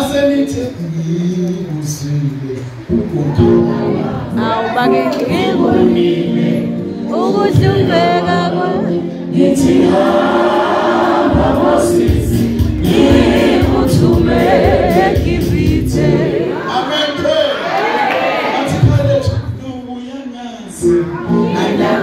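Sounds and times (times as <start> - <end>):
sustained keyboard chords: 2.3 - 16.6
gospel choir singing: 2.9 - 18.9, 20.8 - 22.0.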